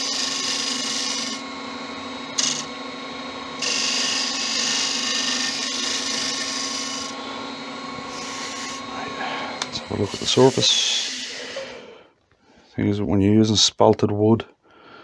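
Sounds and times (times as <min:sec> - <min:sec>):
chisel shaving hiss: 0:00.0 - 0:01.5, 0:02.3 - 0:02.7, 0:03.5 - 0:12.1
wood lathe humming: 0:00.0 - 0:12.2.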